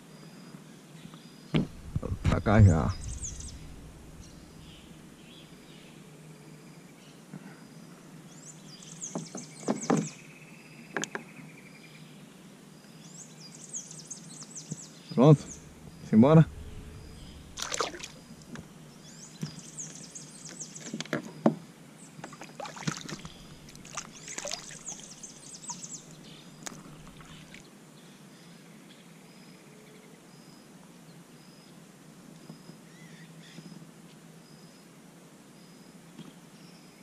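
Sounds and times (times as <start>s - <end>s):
faint outdoor background: 0.0s - 37.0s
paddle splashes and drips: 17.0s - 18.6s, 22.2s - 25.8s, 26.7s - 27.6s.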